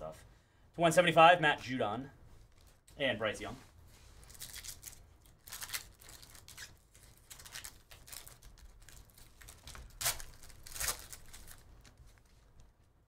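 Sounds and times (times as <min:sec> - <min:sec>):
foil wrapper crinkling and tearing: 0:04.2 - 0:12.3.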